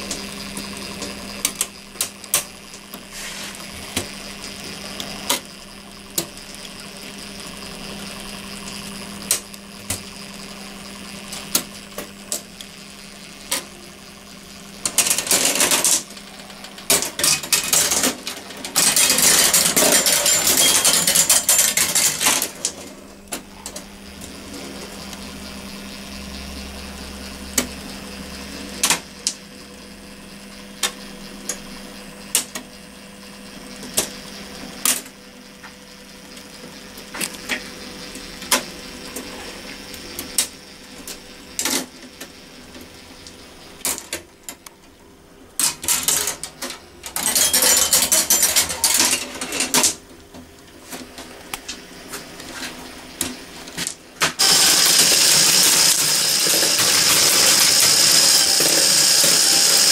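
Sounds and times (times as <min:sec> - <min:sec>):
motor hum with turning gears: 0:00.0 - 0:59.9
marbles clattering through metal: 0:16.9 - 0:22.7, 0:45.8 - 0:50.0.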